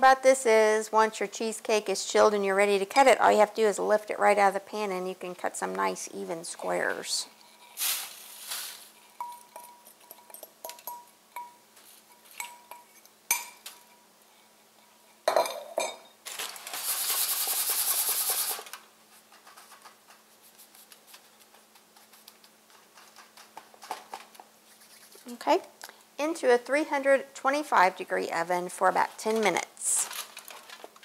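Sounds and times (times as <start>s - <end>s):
aluminium foil crinkling: 7.6s - 9.2s, 29.1s - 31.0s
faint rustling of crumbs: 19.0s - 25.4s.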